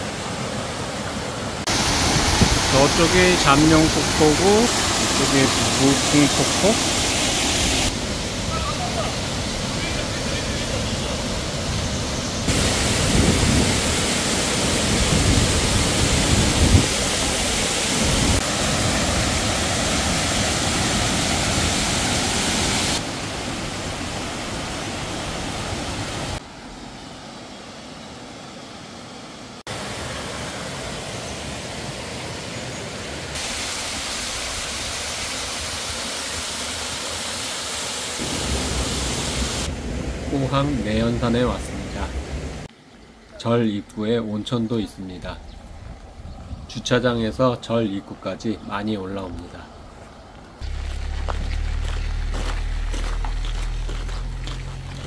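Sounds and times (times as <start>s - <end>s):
waterfall rushing and splashing: 0.0s - 26.4s, 29.7s - 42.7s, 50.6s - 55.0s.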